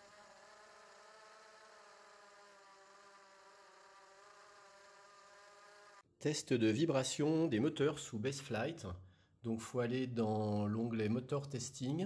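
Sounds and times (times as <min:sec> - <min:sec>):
quadcopter buzzing whine: 0:00.0 - 0:06.0.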